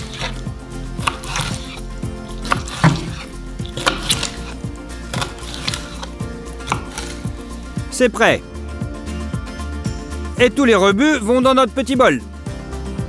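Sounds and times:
knife chopping on cutting board: 0.0 - 0.4, 1.0 - 7.4
background music: 0.0 - 13.0.

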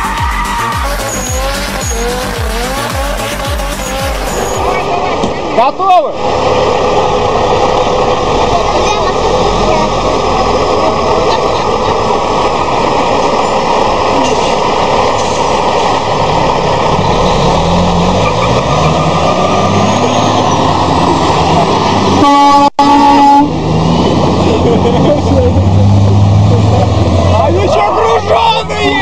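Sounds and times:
air horn blast: 0.0 - 4.9, 22.2 - 23.6
diesel trucks accelerating: 0.0 - 29.0.

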